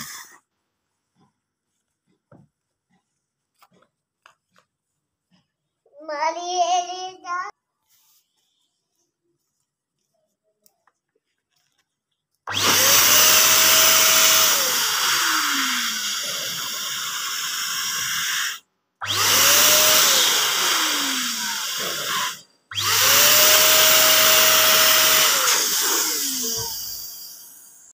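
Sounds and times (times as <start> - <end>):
balloon pump motor whining: 0.0 - 0.5, 12.5 - 28.0.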